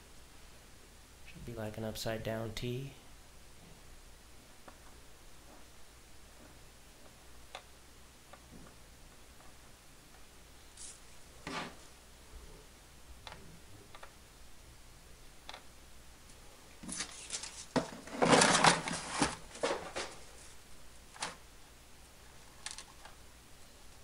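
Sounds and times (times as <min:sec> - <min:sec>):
knocking clattering and rustling: 0:16.8 - 0:20.3.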